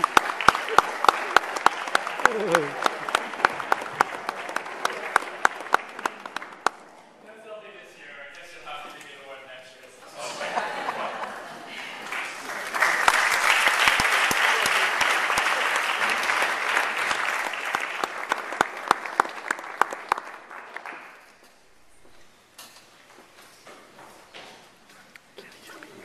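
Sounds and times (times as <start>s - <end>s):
audience applauding: 0.0s - 6.9s, 10.6s - 21.4s.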